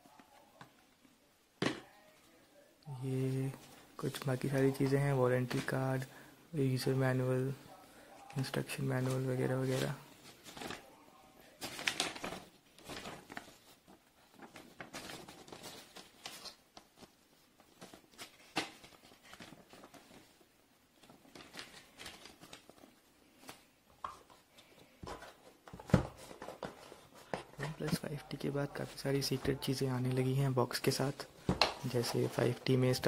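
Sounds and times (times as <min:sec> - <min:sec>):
paper and card rustling: 0:08.3 - 0:33.0.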